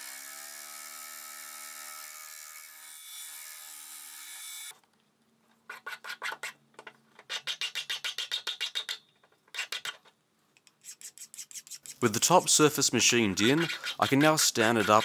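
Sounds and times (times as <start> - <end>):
hand file rasping on metal: 10.8 - 12.6, 13.3 - 15.0.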